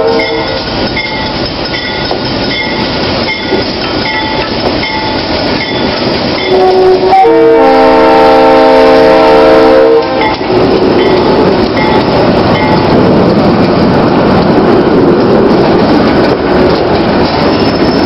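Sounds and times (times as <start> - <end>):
train horn blast: 0.0 - 0.6, 6.4 - 10.4
freight train rumbling past: 0.0 - 18.0.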